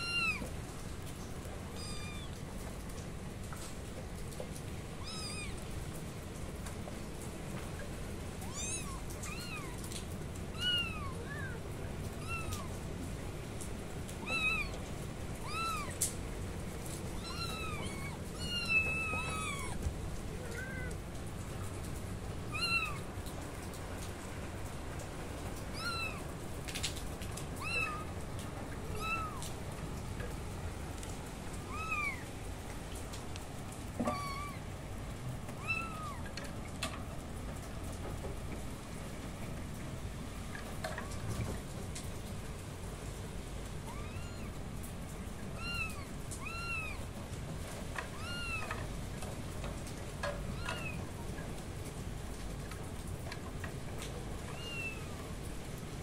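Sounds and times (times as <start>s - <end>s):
kittens meowing: 0.0s - 0.5s, 1.7s - 2.4s, 5.0s - 5.6s, 8.4s - 12.8s, 14.2s - 16.2s, 17.1s - 21.0s, 22.5s - 23.1s, 25.7s - 26.3s, 27.5s - 29.6s, 31.6s - 32.3s, 33.9s - 34.7s, 35.6s - 36.3s, 43.9s - 44.5s, 45.6s - 47.1s, 48.1s - 48.8s, 50.5s - 51.1s, 54.5s - 55.2s
steady background hiss: 0.0s - 56.0s.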